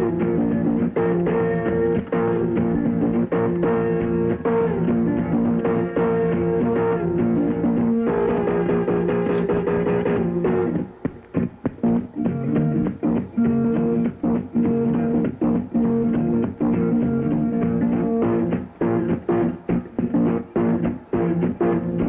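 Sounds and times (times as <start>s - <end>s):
blues-rock guitar music: 0.0s - 22.0s.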